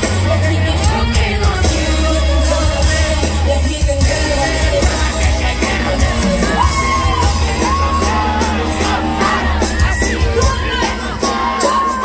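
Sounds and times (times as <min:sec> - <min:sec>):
live pop song over loudspeakers: 0:00.0 - 0:12.0
audience yelling: 0:04.3 - 0:12.0.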